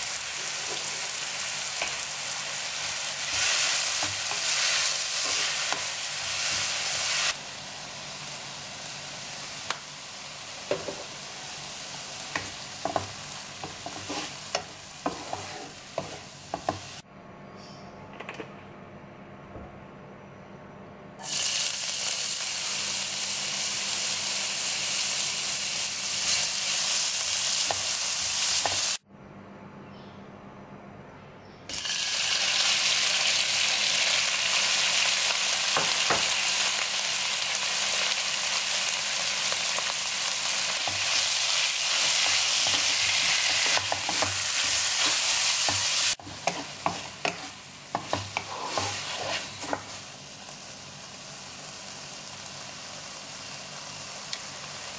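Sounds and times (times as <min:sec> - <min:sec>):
oil sizzling in a wok: 0:00.0 - 0:17.0, 0:21.2 - 0:29.0, 0:31.7 - 0:54.9
wooden spatula scraping a wok: 0:12.8 - 0:17.0, 0:41.9 - 0:50.0.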